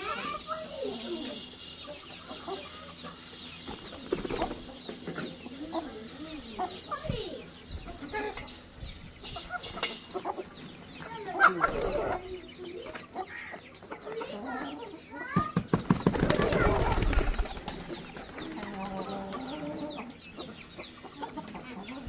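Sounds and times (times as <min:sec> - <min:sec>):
chickens clucking: 0:00.0 - 0:22.0
chicken beating wings: 0:15.6 - 0:18.9.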